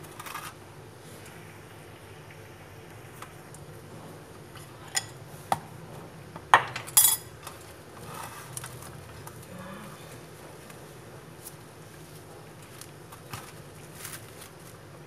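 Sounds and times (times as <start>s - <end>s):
plastic wrap rustling: 10.6s - 15.0s.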